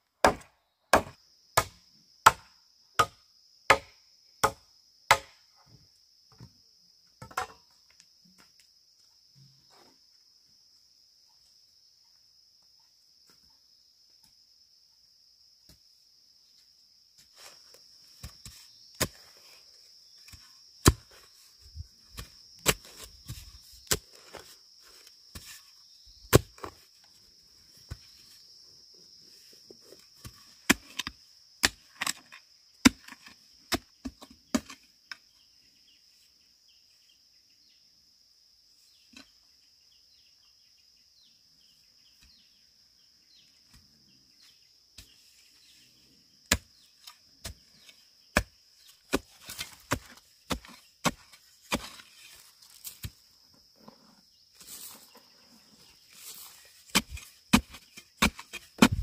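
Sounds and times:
tool striking bamboo: 0.2 - 5.4, 56.9 - 59.0.

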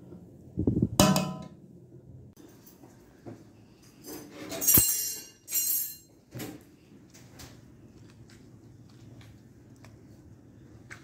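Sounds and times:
metal spoon clinking on pot: 4.6 - 6.1.

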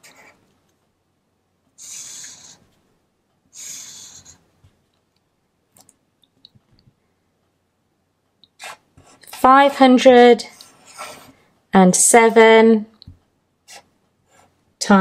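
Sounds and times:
marker drawn across paper: 1.8 - 2.8, 3.5 - 4.4, 8.6 - 9.4, 10.5 - 11.4, 13.7 - 14.6.

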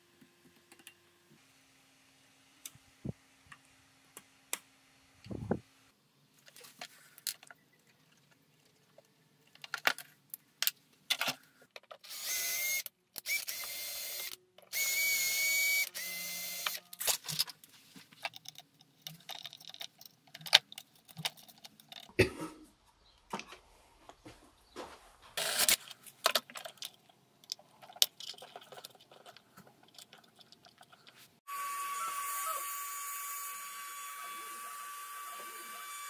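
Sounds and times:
small electric motor whirring: 12.0 - 17.0, 31.4 - 36.0.

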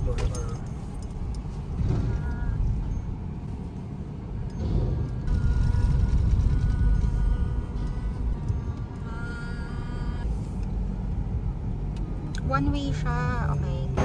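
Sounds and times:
car driving rumble from inside: 0.0 - 14.0.

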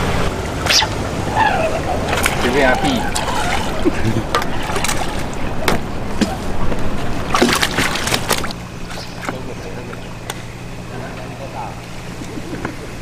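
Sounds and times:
steady low hum: 0.0 - 13.0
fish splashing at surface: 7.2 - 9.4.

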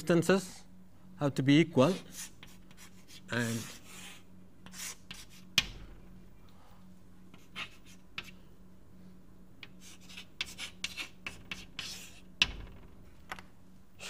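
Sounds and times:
faint steady hum: 0.0 - 14.0
scratchy writing strokes: 1.8 - 5.6, 7.3 - 8.4, 9.6 - 12.4.

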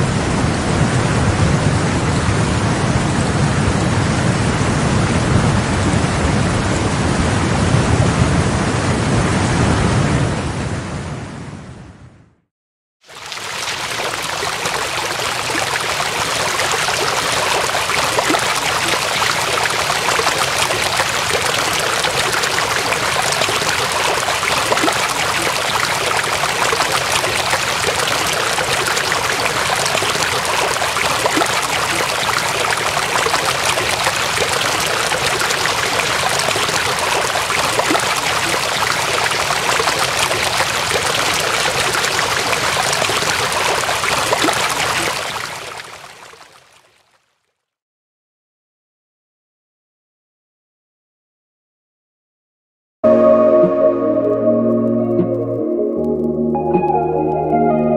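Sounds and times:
rushing floodwater: 13.1 - 46.7.

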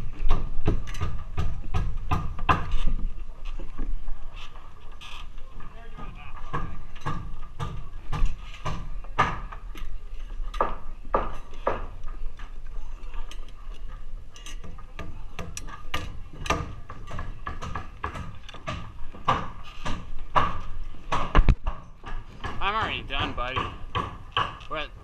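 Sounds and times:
hammer driving nails into wood: 14.6 - 22.9, 23.5 - 24.8.

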